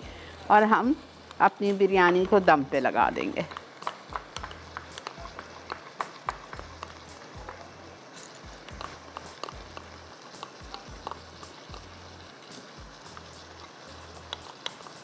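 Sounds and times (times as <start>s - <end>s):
food sizzling in a frying pan: 0.0s - 15.0s
spatula stirring and scraping: 3.5s - 15.0s.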